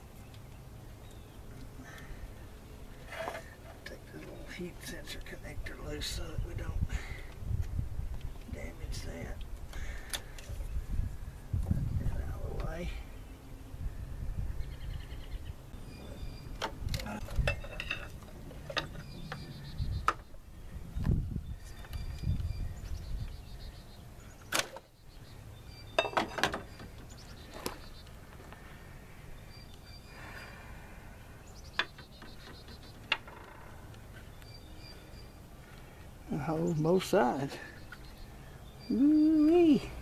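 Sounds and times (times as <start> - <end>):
hand tools clinking on metal: 17.0 - 19.1
faint high chirping: 21.0 - 28.2, 29.3 - 33.1, 37.8 - 40.0.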